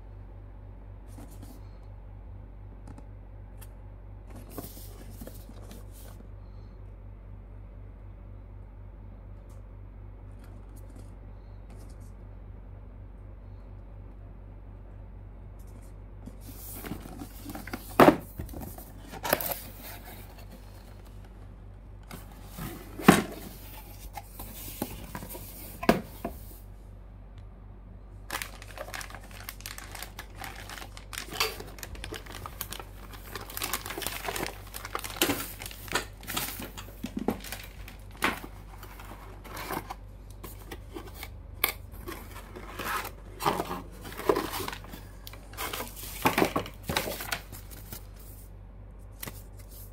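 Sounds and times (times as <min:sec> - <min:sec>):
plastic bag crinkling: 0:28.3 - 0:39.9.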